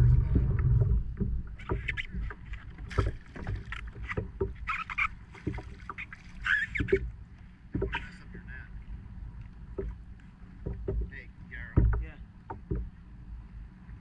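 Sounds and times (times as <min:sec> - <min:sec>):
wind rumble on microphone: 0:00.0 - 0:05.8
water splashing: 0:00.0 - 0:13.0
net handle knocking on kayak: 0:00.1 - 0:06.0, 0:06.6 - 0:07.1, 0:07.7 - 0:08.1, 0:09.7 - 0:10.0, 0:10.6 - 0:13.0.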